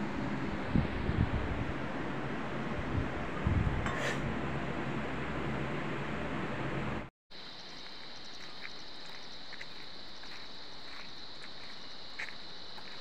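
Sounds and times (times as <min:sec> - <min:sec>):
insects droning: 0:07.3 - 0:13.0.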